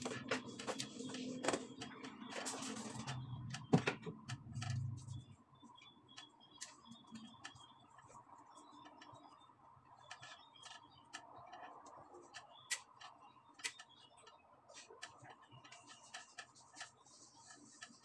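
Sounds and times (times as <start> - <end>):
small clicks and taps: 5.8 - 18.0.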